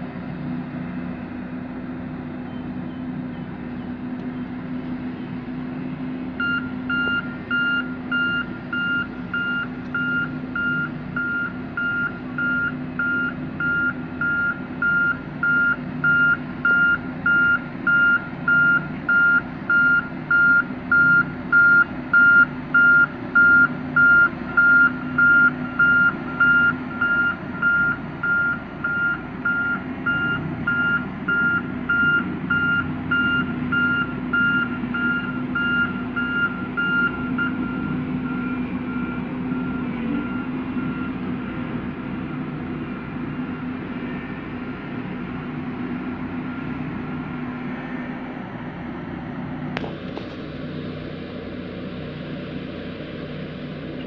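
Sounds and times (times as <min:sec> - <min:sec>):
diesel roller engines running: 0:00.0 - 0:54.0
reversing alarm beeping: 0:06.3 - 0:41.6.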